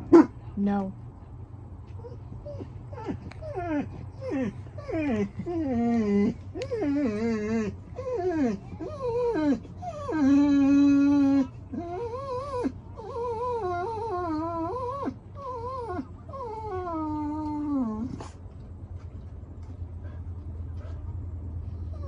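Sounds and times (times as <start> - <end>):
dog whining: 2.0 - 18.4.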